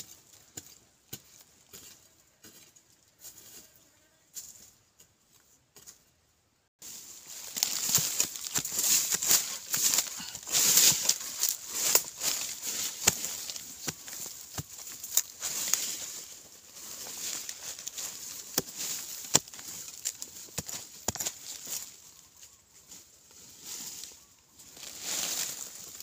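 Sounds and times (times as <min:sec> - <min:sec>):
digging tool scraping soil: 0:06.8 - 0:22.0.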